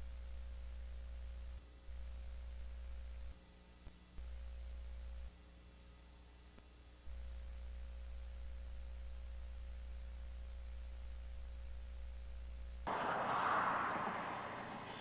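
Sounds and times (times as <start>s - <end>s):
low electrical hum: 0.0s - 15.0s
loud rush of noise: 12.9s - 15.0s.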